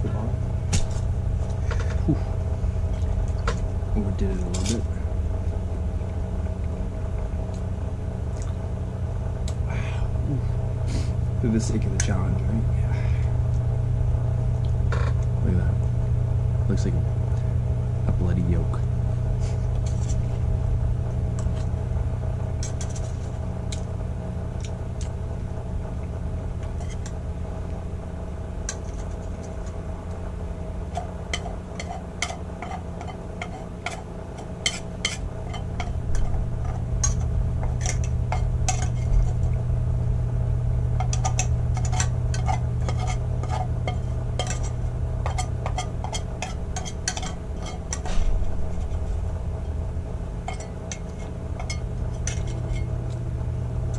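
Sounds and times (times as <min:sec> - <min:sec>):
steady low hum: 0:00.0 - 0:53.9
cutlery scraping metal bowl: 0:28.7 - 0:29.2, 0:30.9 - 0:39.4, 0:41.0 - 0:49.0, 0:50.5 - 0:52.9.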